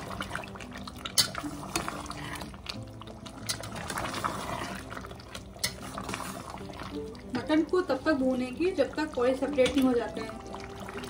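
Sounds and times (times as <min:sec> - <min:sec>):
background music with held notes: 0:00.0 - 0:11.0
light sizzle: 0:00.0 - 0:11.0
spoon stirring food in pot: 0:00.0 - 0:11.0
spoon clinking against pot: 0:01.0 - 0:01.9, 0:05.6 - 0:05.8.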